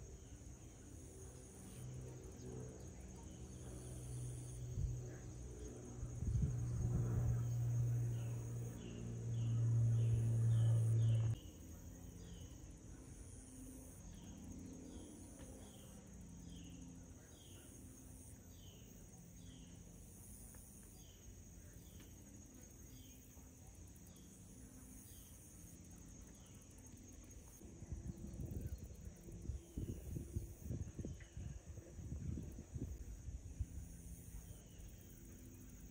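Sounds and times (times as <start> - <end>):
loud low hum: 0.0 - 20.1
insect chorus buzzing: 0.0 - 35.9.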